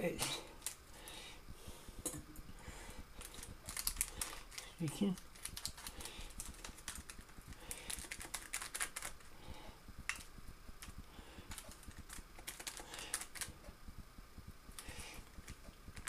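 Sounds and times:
baking paper and foil crinkling: 0.0s - 1.3s, 2.7s - 13.6s.

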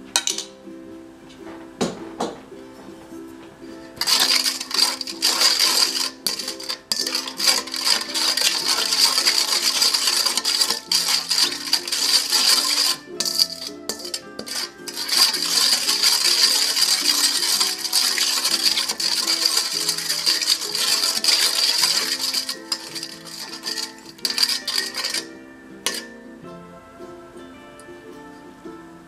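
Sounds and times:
background music: 0.0s - 29.0s
spatula scraping metal bowl: 4.0s - 25.3s, 25.9s - 26.1s.

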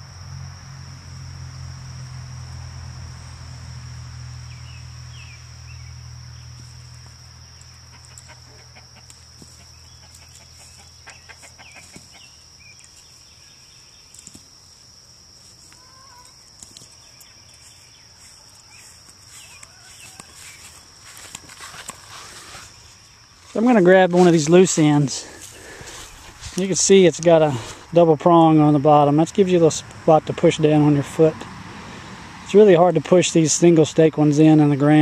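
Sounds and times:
high insect drone: 0.0s - 35.0s
chickens clucking: 7.8s - 12.4s.

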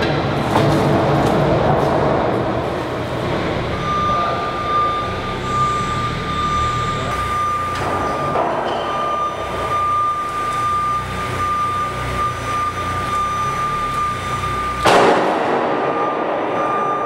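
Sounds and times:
forklift whine: 2.2s - 17.0s
heavy steel crashing down: 14.7s - 17.0s.

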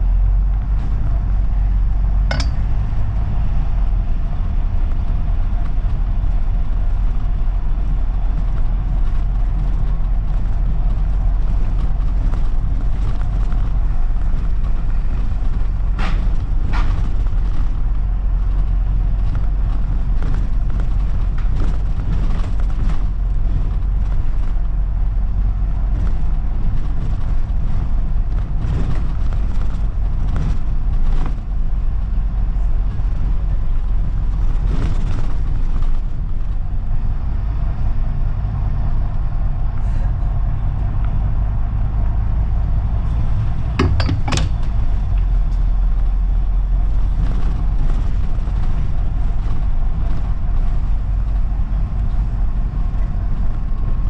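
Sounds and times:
bus engine and road rumble: 0.0s - 54.0s
light rattles: 2.2s - 3.1s
sharp clatter: 2.3s - 3.0s.

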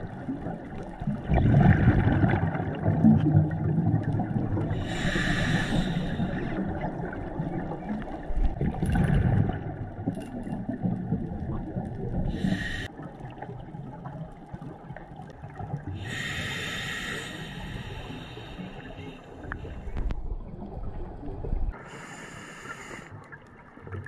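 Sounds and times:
bubbling exhaled air: 1.1s - 7.8s, 12.2s - 13.0s
hissing regulator inhales: 4.8s - 6.6s, 12.4s - 12.9s, 16.0s - 19.8s, 21.8s - 23.1s.

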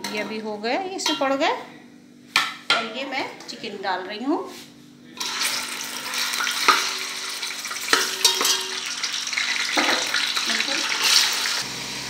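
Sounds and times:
steel spoon stirring: 5.2s - 11.6s
chicken sizzling in hot oil: 5.2s - 12.0s.

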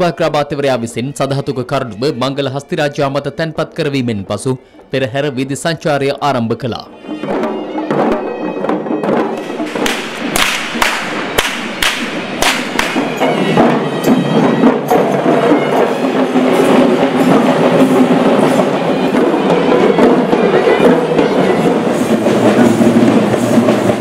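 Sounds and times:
reedy wind instrument: 0.0s - 24.0s
drumming: 5.3s - 24.0s
whip cracks: 9.7s - 13.2s.

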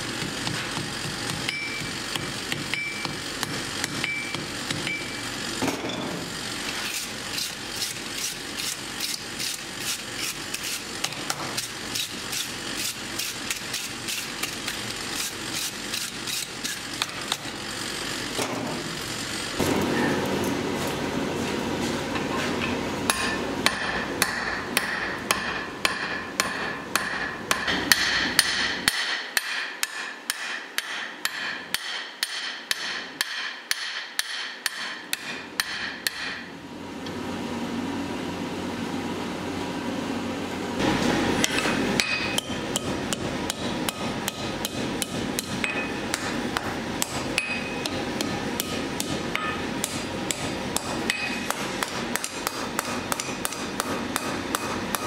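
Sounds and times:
hammer striking steel on anvil: 0.4s - 6.2s, 22.6s - 36.5s, 41.4s - 55.0s.

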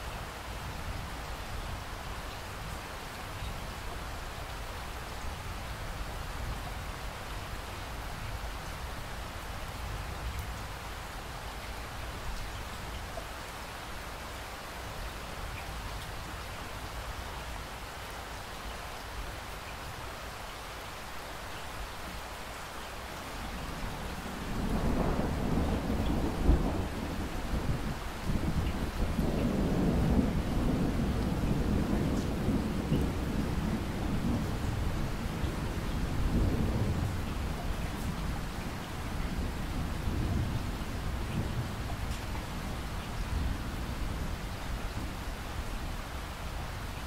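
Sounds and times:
steady rain falling: 0.0s - 47.0s
thunder rumbling: 24.2s - 44.4s.

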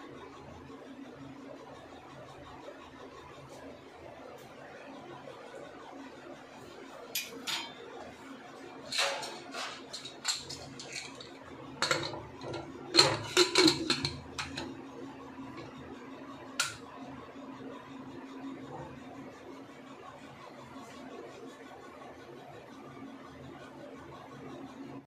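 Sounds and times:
metal lid clanks and scrapes: 7.2s - 7.8s, 8.9s - 14.8s, 16.6s - 16.8s.

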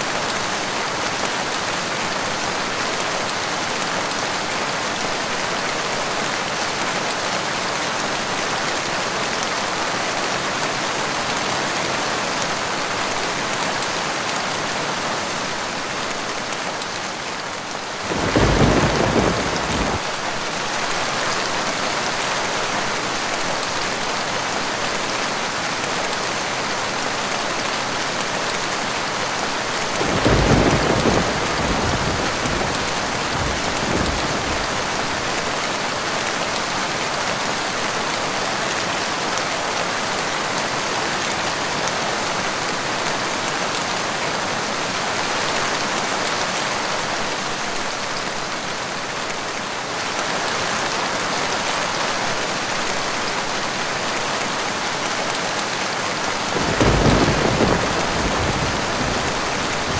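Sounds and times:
steady rain falling: 0.0s - 59.9s
thunder rumble: 18.1s - 20.1s, 30.0s - 34.9s, 56.6s - 59.9s.

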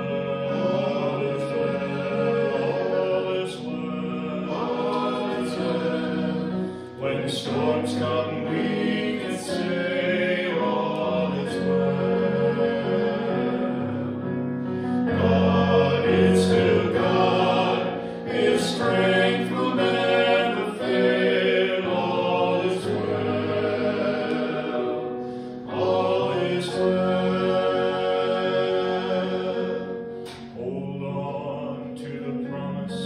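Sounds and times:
electric keyboard: 0.0s - 33.0s
group singing worship song: 0.0s - 33.0s.

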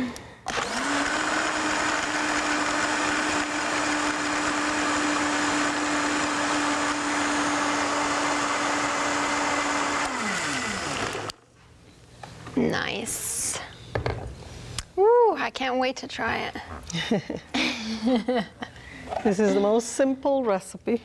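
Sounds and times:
electric blender motor running: 0.5s - 11.4s.

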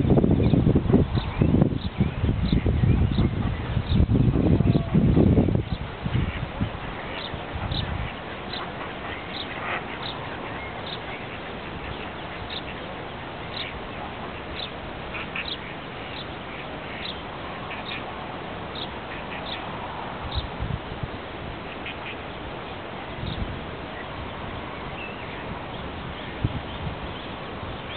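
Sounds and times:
steady background hiss: 0.0s - 27.9s
ducklings peeping: 0.4s - 20.5s, 21.7s - 22.3s.

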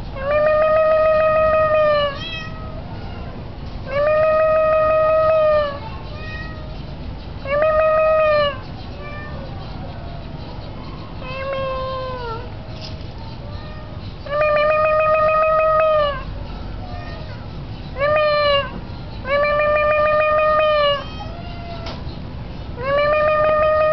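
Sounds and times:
cat meowing: 1.9s - 3.3s, 3.9s - 6.8s, 11.2s - 12.6s, 13.5s - 16.3s, 19.3s - 22.0s.

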